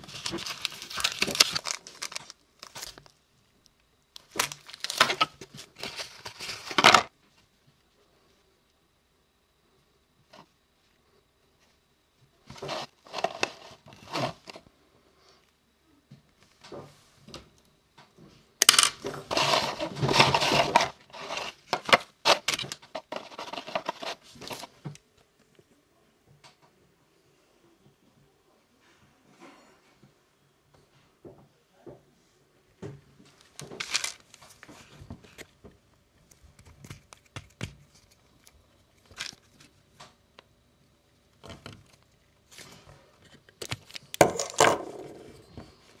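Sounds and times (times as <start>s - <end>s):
packaging rustling: 0.0s - 3.2s, 4.2s - 7.1s, 12.5s - 14.6s, 19.0s - 24.7s, 33.4s - 35.5s, 41.6s - 44.6s
plastic wrapping crinkling: 0.0s - 7.1s, 33.4s - 35.5s, 41.6s - 44.6s.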